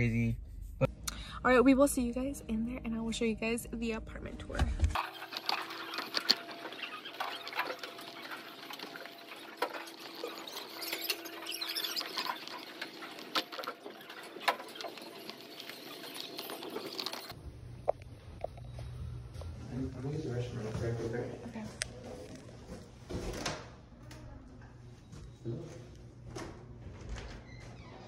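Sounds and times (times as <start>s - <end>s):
stroller wheels squeaking and clicking: 5.0s - 17.4s.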